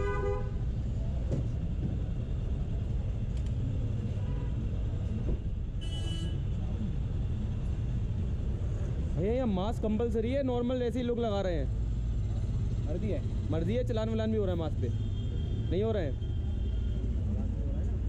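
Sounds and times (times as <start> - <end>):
car horn: 0.0 - 0.7, 5.8 - 6.5, 14.8 - 17.1
road traffic rumble: 0.0 - 18.0.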